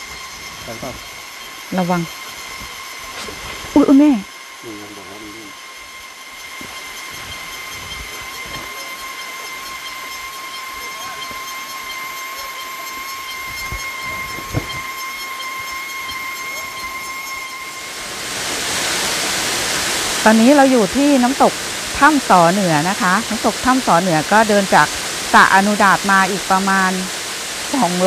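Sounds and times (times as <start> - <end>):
high-pitched whine: 0.0 - 28.0
faint hiss: 4.6 - 5.5
waterfall rushing: 18.0 - 22.4.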